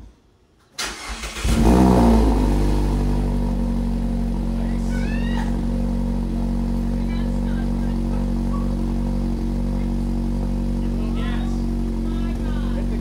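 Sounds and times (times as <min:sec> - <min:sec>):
car engine starting and idling: 0:00.7 - 0:13.0
person squealing with delight: 0:04.9 - 0:05.6.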